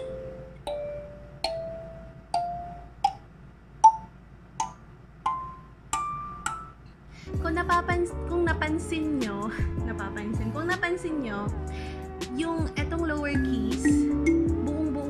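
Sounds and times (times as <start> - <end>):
kalimba notes plucked: 0.0 - 3.2, 3.8 - 6.8, 13.4 - 15.0.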